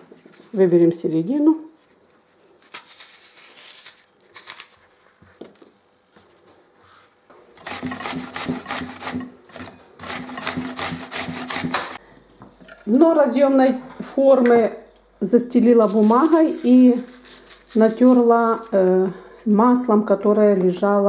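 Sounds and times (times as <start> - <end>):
apple rasping on a grater: 7.6 - 12.0, 15.8 - 19.0
teaspoon scraping an apple: 7.6 - 12.0, 15.8 - 19.0.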